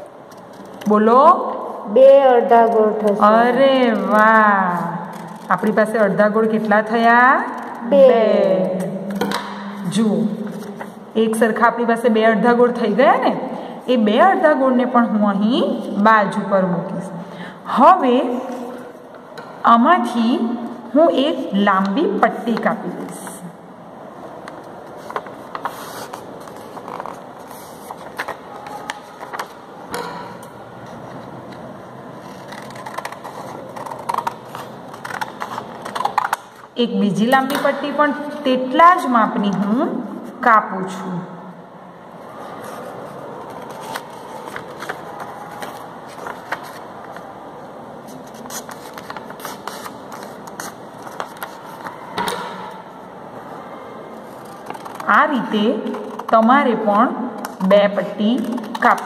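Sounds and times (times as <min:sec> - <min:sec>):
steady background noise: 0:00.0 - 0:59.0
paper rustling and crackling: 0:24.5 - 0:29.6, 0:30.8 - 0:36.7, 0:42.3 - 0:52.1, 0:54.2 - 0:56.4.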